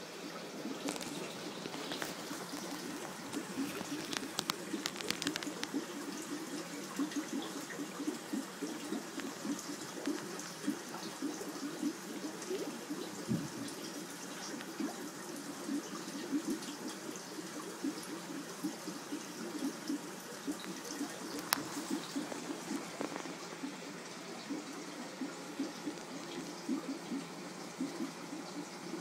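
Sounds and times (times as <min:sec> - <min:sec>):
aquarium water bubbling: 0:00.0 - 0:29.0
faint clicks: 0:00.8 - 0:10.8.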